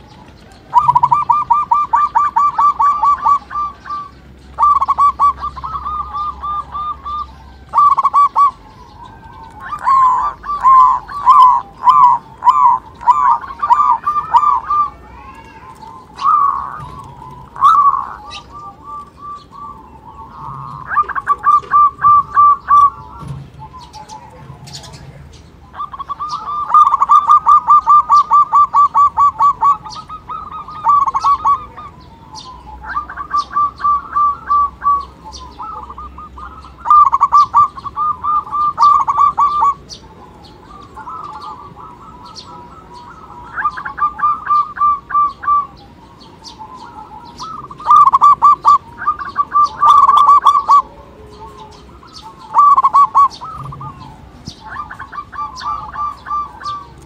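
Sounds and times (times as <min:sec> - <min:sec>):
dove cooing: 0:00.0 - 0:57.0.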